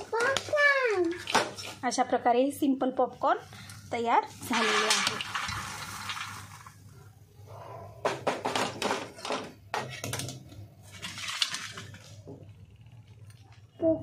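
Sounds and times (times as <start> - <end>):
popcorn poured onto steel plate: 4.3 - 6.9.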